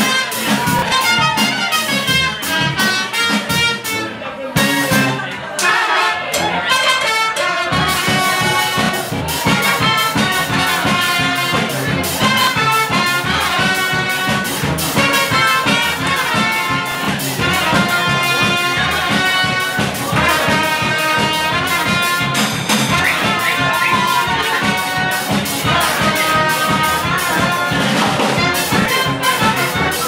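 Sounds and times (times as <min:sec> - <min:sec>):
fast drum beat: 0:00.0 - 0:04.0, 0:07.7 - 0:30.0
trumpets and trombones melody: 0:00.0 - 0:30.0
sousaphone bass line: 0:07.7 - 0:30.0.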